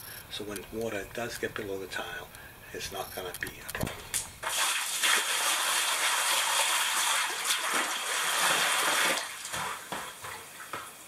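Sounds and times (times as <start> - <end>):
water pouring and splashing: 4.4 - 11.0.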